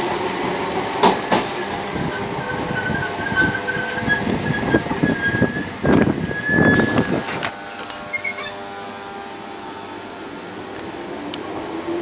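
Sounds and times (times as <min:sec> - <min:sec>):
train humming: 0:00.0 - 0:12.0
train wheels squealing: 0:02.1 - 0:07.3, 0:08.0 - 0:08.6.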